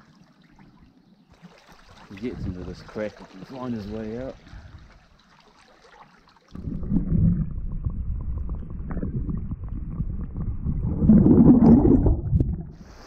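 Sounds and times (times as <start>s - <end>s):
muffled underwater rumble: 6.6s - 13.0s.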